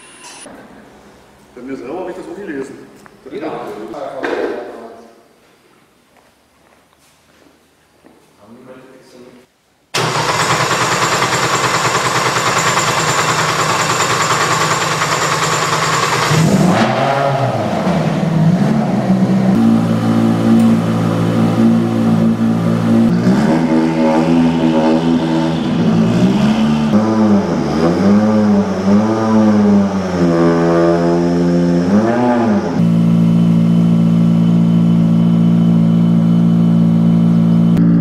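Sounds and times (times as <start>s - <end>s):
rally car engine idling and revving: 10.0s - 38.0s.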